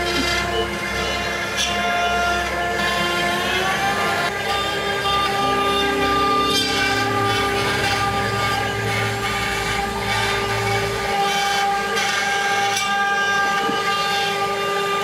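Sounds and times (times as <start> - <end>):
router spindle whining: 0.0 - 15.0
lower hum: 2.4 - 12.0.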